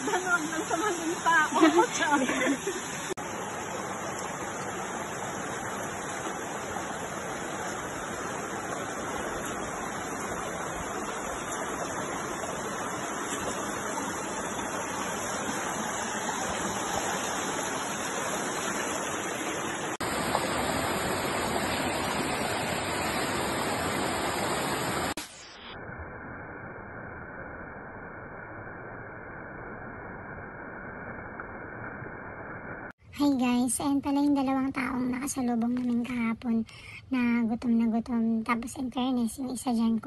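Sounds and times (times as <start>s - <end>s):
stream and small waterfall rushing: 0.0s - 25.6s.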